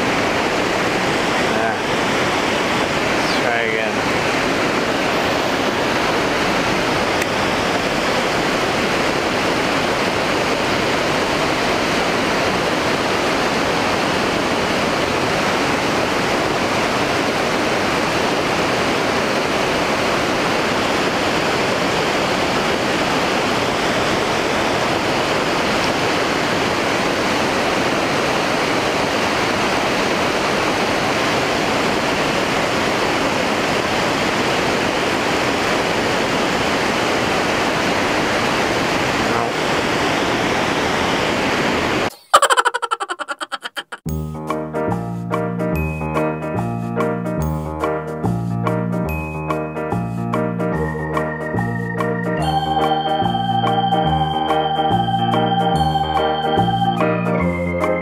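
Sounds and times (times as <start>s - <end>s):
water pouring over dam spillway: 0.0s - 41.9s.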